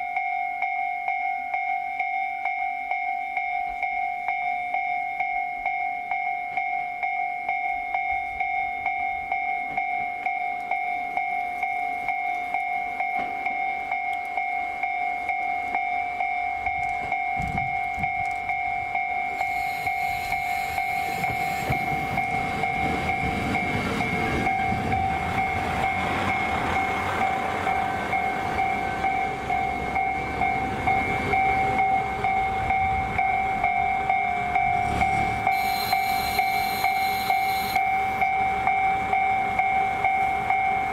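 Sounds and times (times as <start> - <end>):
railway warning bell ringing: 0.0 - 40.9
diesel railcar engine: 9.2 - 40.9.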